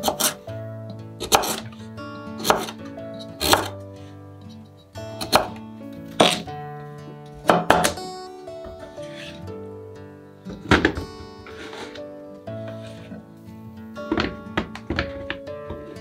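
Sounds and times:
knife chopping on wooden board: 1.2 - 1.6, 2.4 - 2.8, 3.4 - 3.8, 5.2 - 5.6, 6.2 - 6.4, 7.5 - 8.0.

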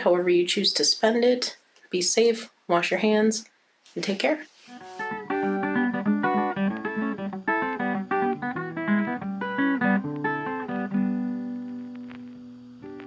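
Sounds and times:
plucked guitar tune: 4.7 - 13.0.

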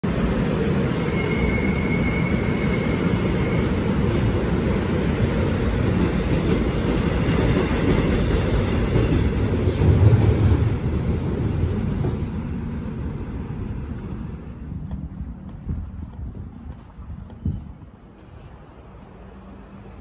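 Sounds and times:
train rumbling along track: 0.0 - 20.0
high wheel squeals: 1.0 - 4.1, 5.7 - 9.4.

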